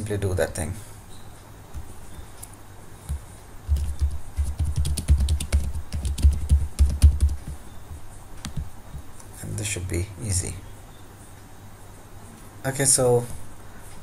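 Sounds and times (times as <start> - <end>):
computer keyboard typing: 3.1 - 7.6, 8.4 - 9.0.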